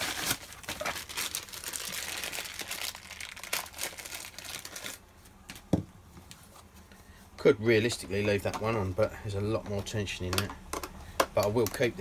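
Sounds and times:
paper envelope rustling: 0.0s - 5.0s.

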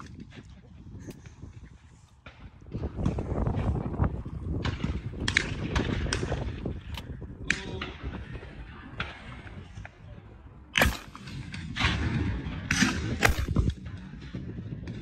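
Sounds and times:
wind rumbling on microphone: 0.0s - 15.0s
gunshot bang: 10.8s - 11.3s, 13.0s - 13.7s.

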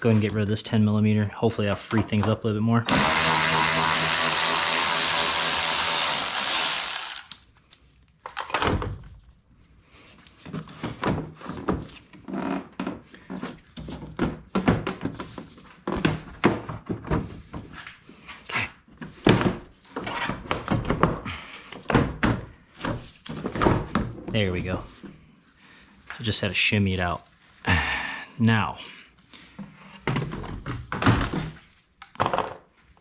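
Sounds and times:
electric ratchet running: 2.9s - 7.4s
plastic bumper knocks and rattles: 13.8s - 17.7s.

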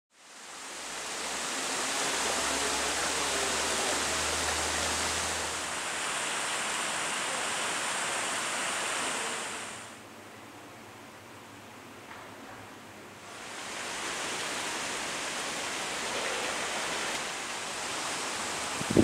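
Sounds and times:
strong wind rushing: 17.7s - 19.0s
wind buffeting microphone: 18.6s - 19.0s.

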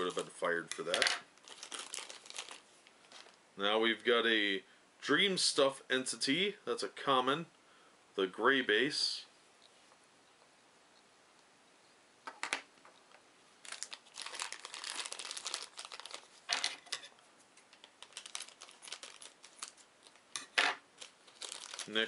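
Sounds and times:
plastic bag crinkling: 0.0s - 3.4s, 13.6s - 17.1s, 17.7s - 22.0s.

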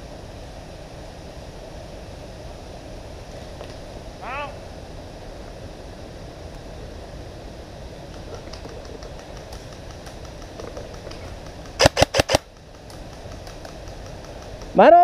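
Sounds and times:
airsoft rifle firing a burst: 9.2s - 14.8s.

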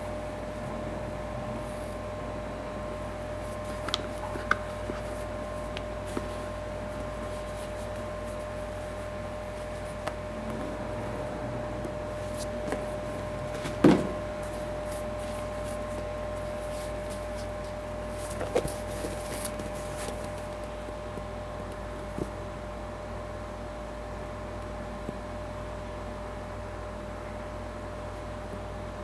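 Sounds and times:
background hum with faint tone: 0.0s - 29.0s
sneaker knocking on cardboard box: 13.5s - 14.4s.

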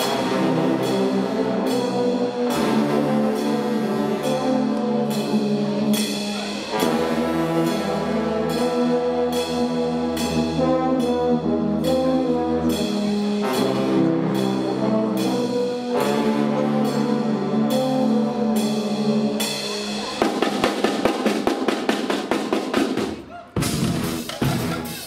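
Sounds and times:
brass band playing: 0.0s - 25.0s
drum beat: 19.6s - 25.0s.

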